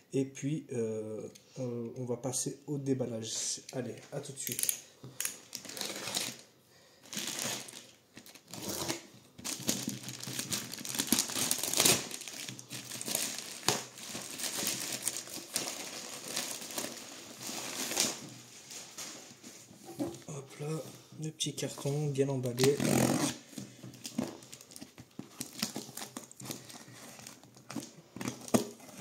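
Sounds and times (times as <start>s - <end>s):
plastic crinkling and ripping: 4.4s - 19.4s, 22.4s - 29.0s
knife slitting plastic bag: 7.1s - 18.3s.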